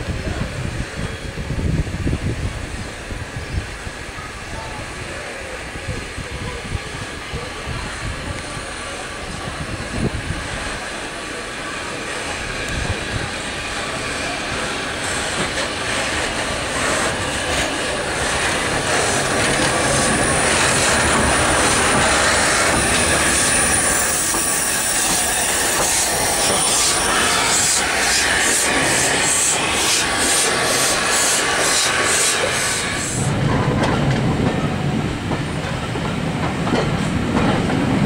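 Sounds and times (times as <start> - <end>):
train rumbling past: 0.0 - 38.0
train wheel squeal and clicks: 11.9 - 34.6.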